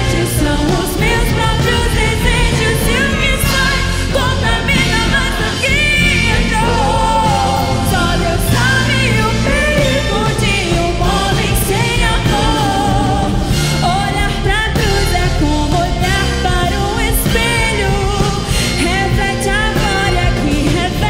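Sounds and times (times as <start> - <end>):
orchestra playing: 0.0 - 21.0
violins: 0.0 - 21.0
woman singing: 0.0 - 21.0.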